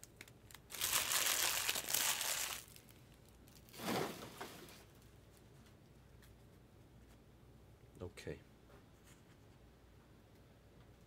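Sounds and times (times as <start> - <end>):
foil wrapper crinkling: 0.0 - 3.7.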